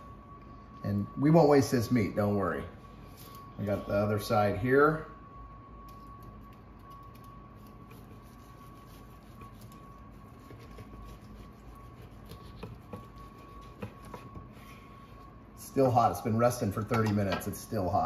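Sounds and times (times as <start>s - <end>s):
background hum: 0.0s - 18.0s
thin high tone: 0.0s - 18.0s
knife cutting meat: 7.7s - 14.3s.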